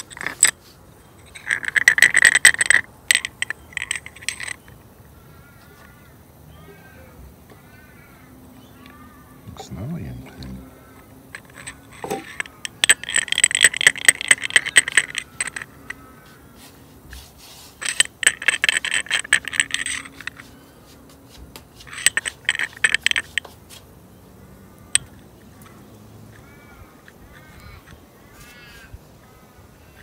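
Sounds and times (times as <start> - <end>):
metal burrs rasping and clicking: 0.0 - 4.7, 8.8 - 20.6, 21.8 - 23.6.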